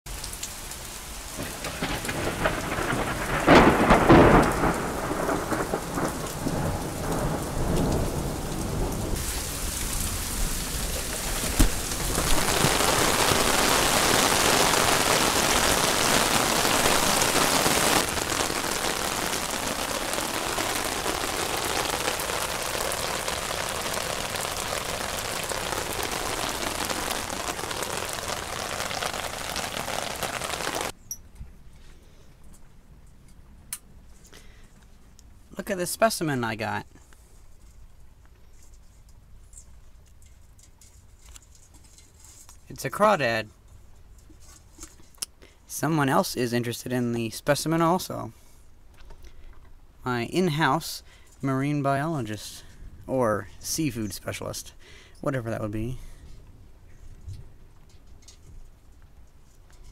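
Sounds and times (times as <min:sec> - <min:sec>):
heavy rain on pavement: 0:00.1 - 0:31.0
thunder rumble: 0:01.1 - 0:31.0.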